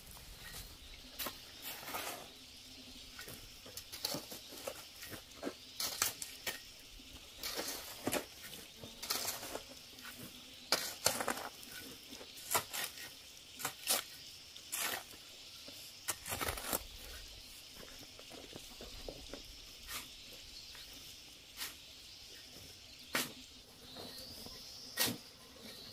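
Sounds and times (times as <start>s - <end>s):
shovel scraping cement mix on concrete: 3.2s - 6.6s, 7.4s - 15.2s, 16.0s - 17.2s, 24.9s - 25.9s.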